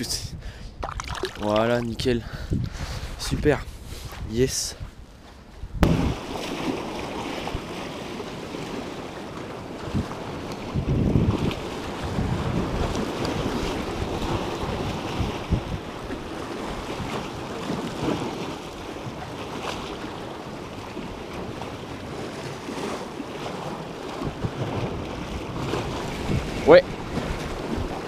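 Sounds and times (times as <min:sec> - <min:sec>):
wind rumbling on microphone: 0:00.0 - 0:28.0
small waves breaking over rocks: 0:05.8 - 0:28.0.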